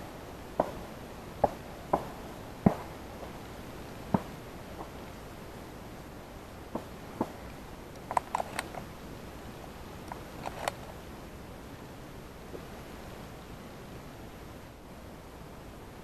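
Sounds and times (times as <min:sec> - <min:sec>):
faint steady hiss: 0:00.0 - 0:16.0
sharp clicks and knocks: 0:08.0 - 0:08.9, 0:10.1 - 0:10.9.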